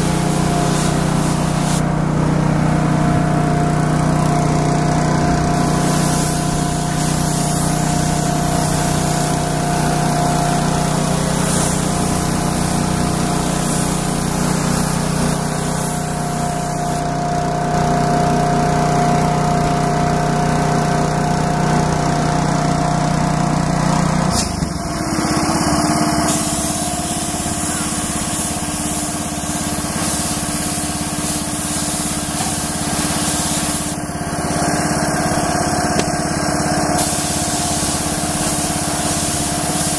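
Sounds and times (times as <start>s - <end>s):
spray gun hissing: 0.0s - 2.0s, 4.8s - 17.3s, 24.3s - 39.9s
steady machine hum: 0.0s - 39.9s.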